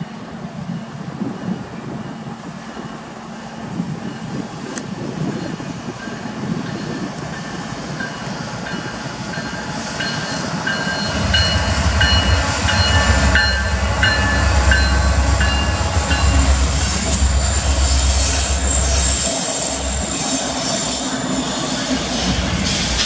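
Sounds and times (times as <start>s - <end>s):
diesel locomotive rumble: 0.0s - 23.0s
high ringing tones: 5.4s - 21.7s.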